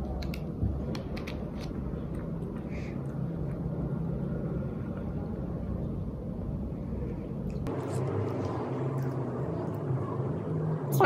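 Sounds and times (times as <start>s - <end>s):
low rumble with hum: 0.0s - 11.0s.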